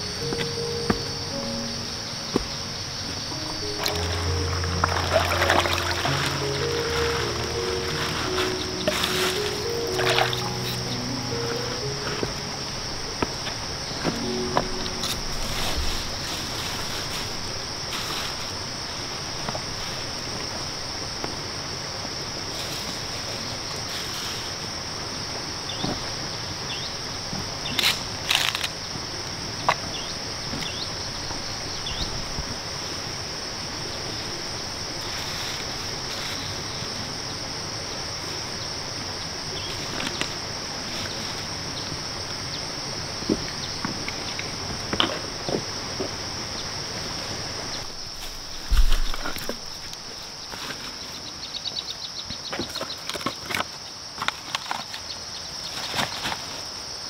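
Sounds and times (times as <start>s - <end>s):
insects droning: 0.0s - 57.0s
footsteps on stones: 0.3s - 1.1s, 2.3s - 18.5s
plastic bag rustling: 3.4s - 18.7s.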